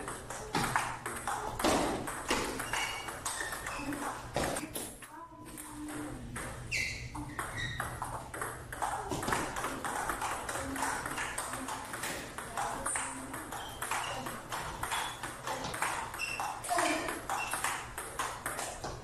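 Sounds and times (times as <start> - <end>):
ball bouncing on table: 0.0 - 4.9, 5.5 - 19.0
ping pong ball hitting paddles: 0.0 - 4.9, 5.5 - 19.0.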